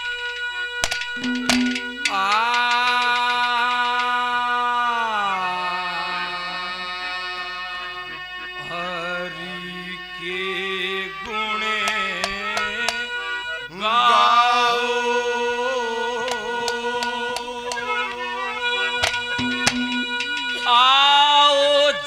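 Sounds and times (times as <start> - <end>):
harmonium drone: 0.0 - 22.0
sharp percussion taps: 0.8 - 4.1, 19.0 - 20.6
man singing wordless melody: 1.4 - 7.8, 8.6 - 22.0.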